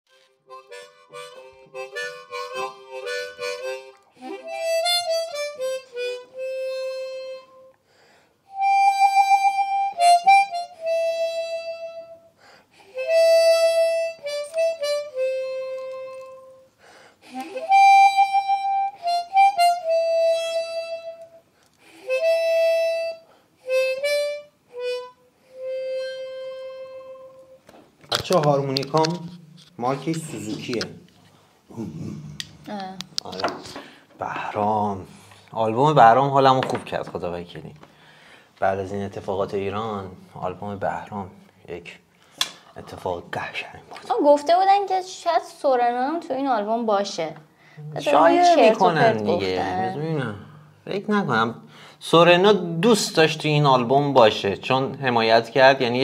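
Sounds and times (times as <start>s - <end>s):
harmonica melody: 0.1s - 27.7s, 47.6s - 53.4s.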